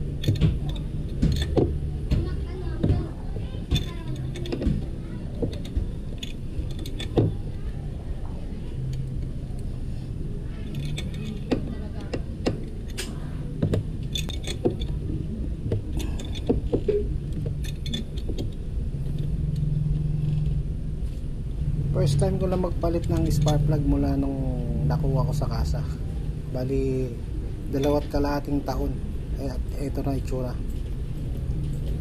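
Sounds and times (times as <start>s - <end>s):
low steady hum: 0.0s - 32.0s
metal tool clinks and rattles: 0.1s - 1.8s, 3.7s - 4.8s, 5.4s - 7.4s, 10.6s - 11.6s, 14.0s - 15.0s, 15.9s - 19.4s.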